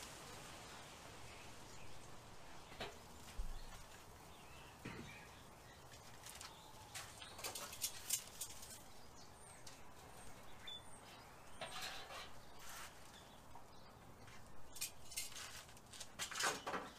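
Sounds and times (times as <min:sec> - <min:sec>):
handling clicks and rustles: 0:05.8 - 0:08.9, 0:14.2 - 0:16.9.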